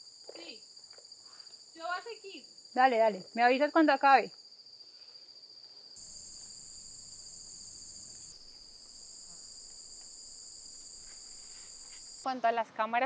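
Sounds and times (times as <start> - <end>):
faint forest background: 0.0 - 13.0
insect chorus shrilling: 6.0 - 12.3.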